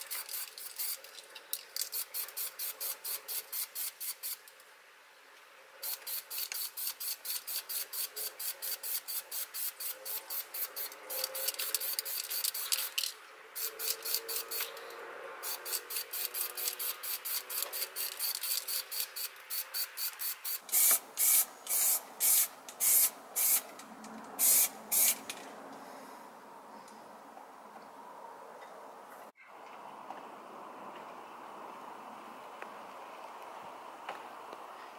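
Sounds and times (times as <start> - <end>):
spray paint can hissing: 0.0 - 1.1, 1.8 - 4.5, 5.8 - 14.8, 15.4 - 23.7, 24.4 - 25.3.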